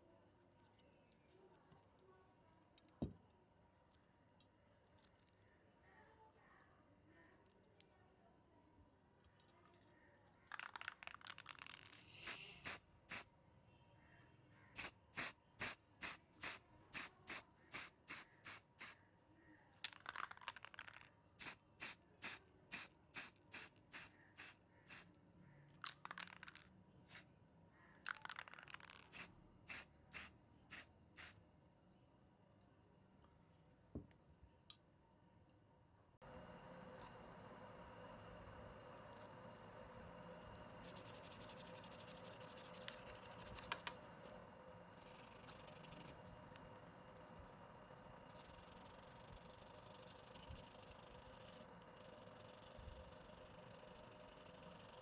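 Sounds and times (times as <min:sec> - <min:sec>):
spray paint can spraying: 0:10.5 - 0:13.3, 0:14.8 - 0:19.0, 0:19.9 - 0:25.1, 0:25.8 - 0:27.2, 0:28.1 - 0:31.4, 0:39.0 - 0:47.3, 0:47.9 - 0:55.0.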